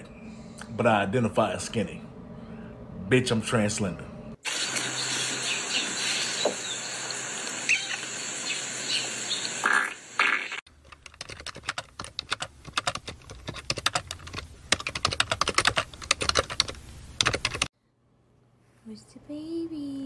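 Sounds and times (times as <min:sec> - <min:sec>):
spluttering fart noise: 0:09.6 - 0:10.6
computer keyboard typing: 0:10.8 - 0:17.7.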